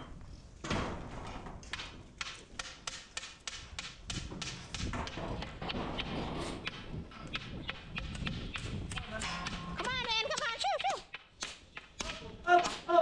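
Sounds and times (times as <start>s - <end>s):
sheep clattering through metal pens: 4.3s - 10.9s.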